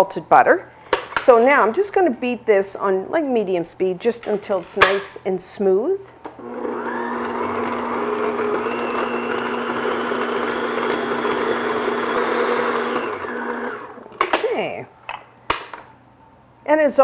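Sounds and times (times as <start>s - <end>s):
stand mixer motor whine: 6.4s - 14.1s.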